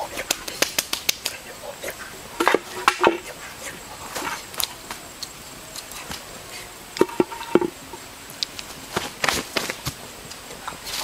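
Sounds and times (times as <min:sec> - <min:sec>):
sharp knocks and clatter: 0:07.0 - 0:07.8.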